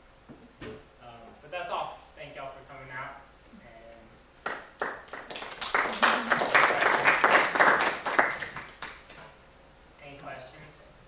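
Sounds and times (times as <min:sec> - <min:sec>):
audience applauding: 0:04.4 - 0:09.0.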